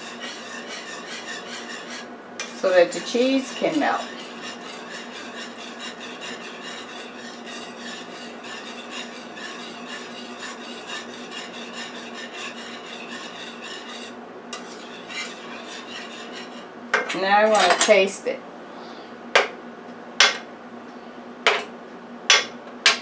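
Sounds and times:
whisk scraping metal pan: 0:00.0 - 0:18.0.

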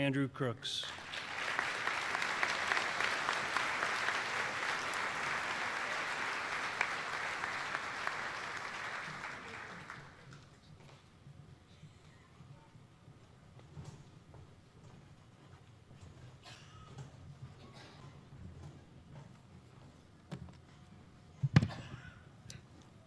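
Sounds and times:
audience applauding: 0:00.8 - 0:10.4.

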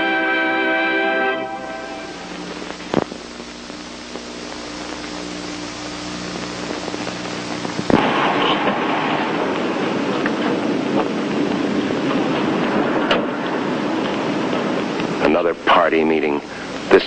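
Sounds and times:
film soundtrack hiss and crackle: 0:00.0 - 0:17.0
faint low hum: 0:01.3 - 0:17.0
sharp pop: 0:07.8 - 0:10.4.

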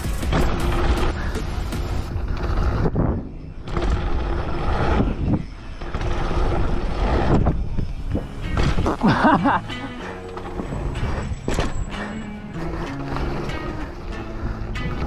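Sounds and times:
bike tyres rolling on dirt: 0:00.0 - 0:15.0
wind over microphone: 0:02.0 - 0:09.0.

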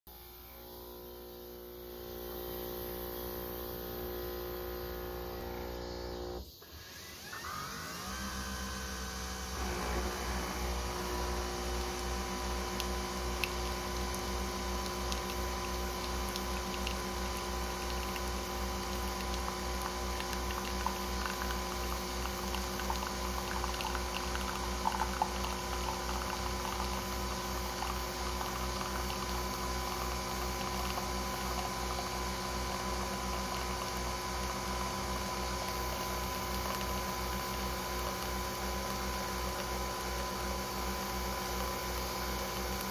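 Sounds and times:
coffee machine humming and pulsing: 0:00.1 - 0:42.9
coffee pouring into a mug: 0:09.5 - 0:42.9.

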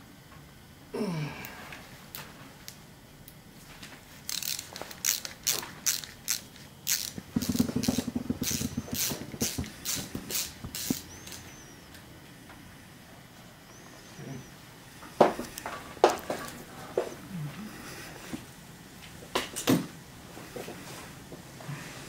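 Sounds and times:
short buzzing rattle: 0:04.3 - 0:11.6
screwdriver scraping metal screw: 0:05.9 - 0:11.4.

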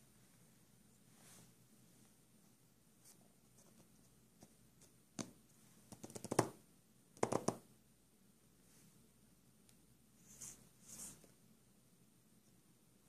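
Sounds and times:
fingertips tapping on cardboard: 0:05.2 - 0:06.6, 0:07.2 - 0:07.6.

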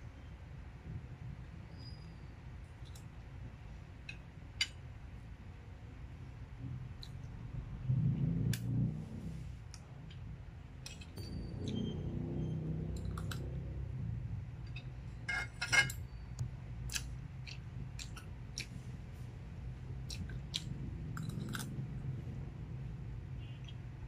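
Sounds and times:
cutlery clinking on a ceramic plate: 0:15.3 - 0:16.0.

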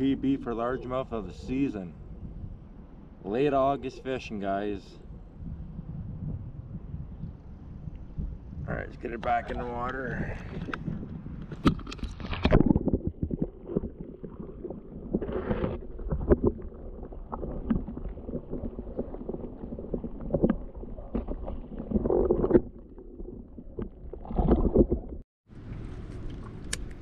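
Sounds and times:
underwater knocks and clicks: 0:09.1 - 0:25.2
underwater water sloshing: 0:09.4 - 0:27.0.

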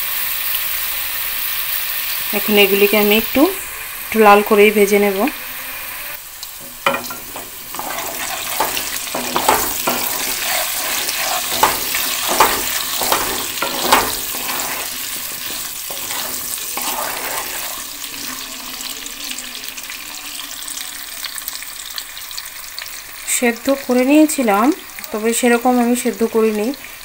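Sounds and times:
potatoes sizzling in hot oil: 0:00.0 - 0:27.0
spatula scraping against pan: 0:06.6 - 0:19.0.

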